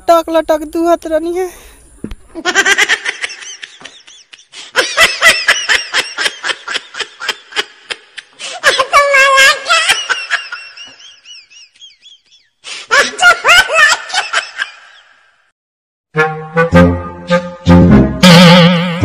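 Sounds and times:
young men laughing: 2.4s - 15.0s
high wavering laugh: 2.4s - 15.3s.

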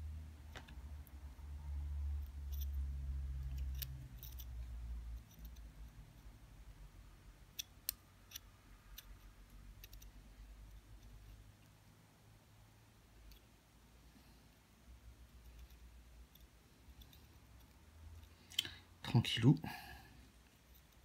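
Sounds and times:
screwdriver and wire clicking on metal: 3.4s - 5.8s, 7.5s - 11.3s.

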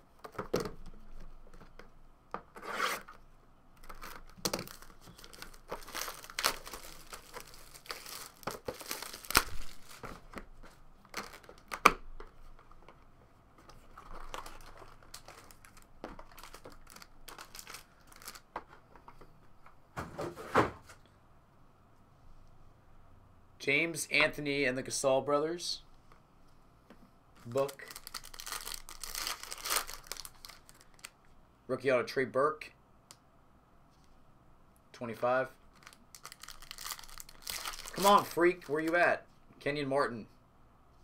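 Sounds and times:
shrink-wrap tearing and crinkling: 3.8s - 10.2s, 11.1s - 11.8s, 13.9s - 18.5s, 27.4s - 31.1s, 35.7s - 39.0s.

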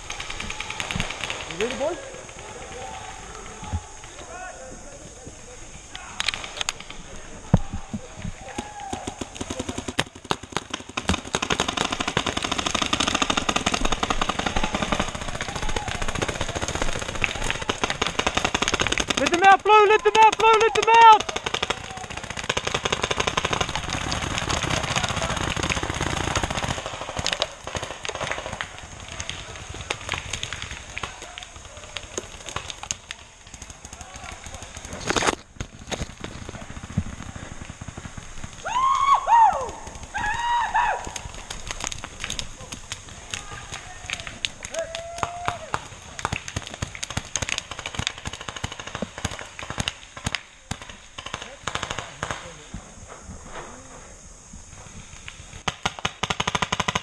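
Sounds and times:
paintball markers firing: 8.4s - 38.7s, 41.0s - 52.6s.

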